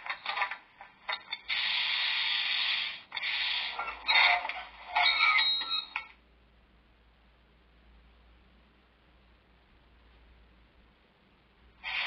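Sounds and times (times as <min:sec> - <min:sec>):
steady hiss: 0:00.7 - 0:04.1, 0:11.2 - 0:12.0
short noisy bursts: 0:01.5 - 0:03.8.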